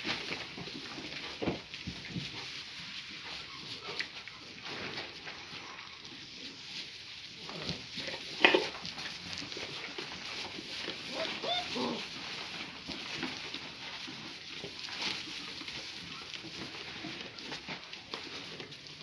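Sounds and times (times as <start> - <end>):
scuffling in straw: 0.0 - 19.0
puppies yelping and whining: 10.9 - 12.2.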